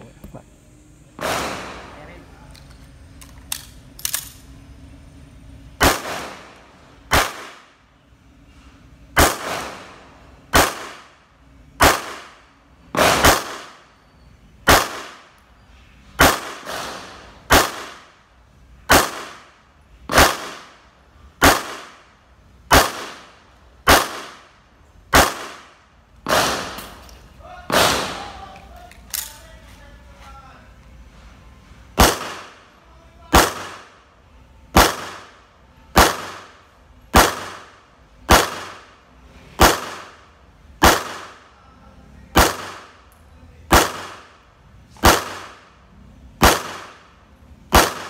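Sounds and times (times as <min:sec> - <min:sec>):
pistol shots with echo: 0:01.2 - 0:02.0, 0:05.8 - 0:07.7, 0:09.2 - 0:11.2, 0:11.8 - 0:12.4, 0:13.0 - 0:13.9, 0:14.7 - 0:15.3, 0:16.2 - 0:18.1, 0:18.9 - 0:19.5, 0:20.1 - 0:20.8, 0:21.4 - 0:22.1, 0:22.7 - 0:24.5, 0:25.1 - 0:27.0, 0:27.7 - 0:28.4, 0:32.0 - 0:32.7, 0:33.3 - 0:34.0, 0:34.7 - 0:38.9, 0:39.6 - 0:41.4, 0:42.3 - 0:43.0, 0:43.7 - 0:44.4, 0:45.0 - 0:45.7, 0:46.4 - 0:47.1, 0:47.7 - 0:48.0.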